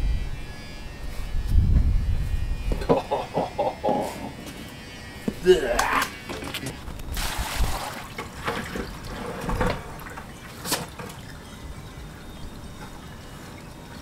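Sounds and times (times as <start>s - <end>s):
water trickling: 6.3s - 14.0s
water splashing onto concrete: 6.4s - 8.9s.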